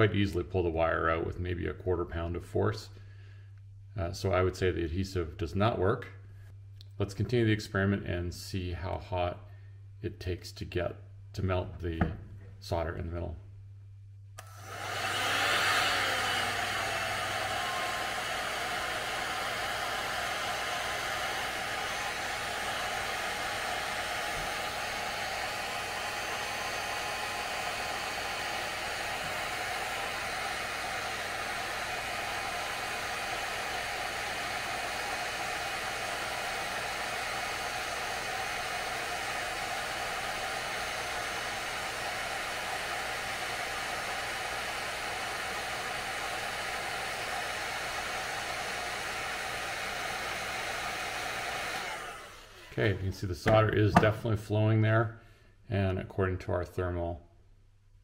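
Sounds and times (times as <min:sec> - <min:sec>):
heat gun fan blowing: 0:14.4 - 0:54.4.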